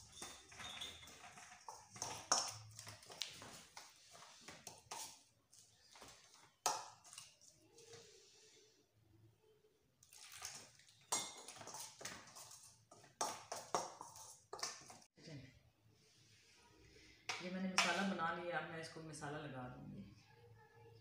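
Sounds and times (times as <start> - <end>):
squelching paste: 0.0 - 8.6, 10.0 - 15.1
spoon clinking in steel bowl: 11.1 - 12.5.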